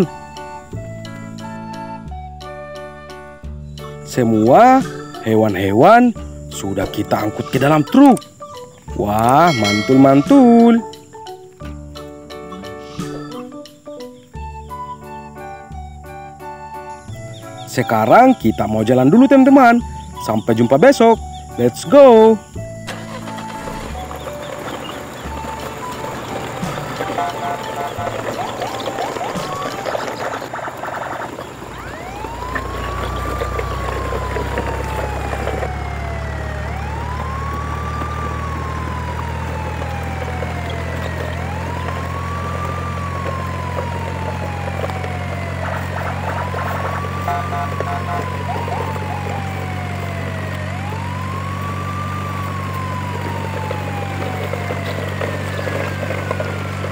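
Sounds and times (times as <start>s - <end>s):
siren wailing: 0.0s - 2.2s, 9.2s - 10.8s, 22.9s - 56.9s
low engine drone: 30.1s - 56.9s.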